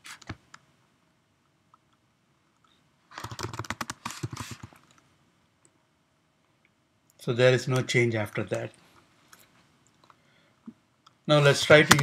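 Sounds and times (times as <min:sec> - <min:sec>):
computer keyboard typing: 0:03.2 - 0:05.0.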